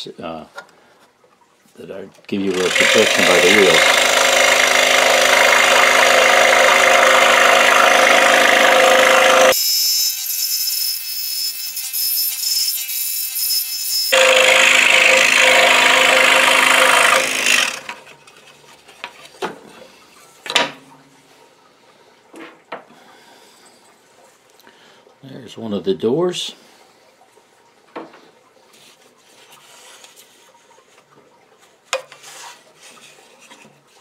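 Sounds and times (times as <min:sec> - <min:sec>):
scroll saw cutting wood: 0:02.4 - 0:18.3.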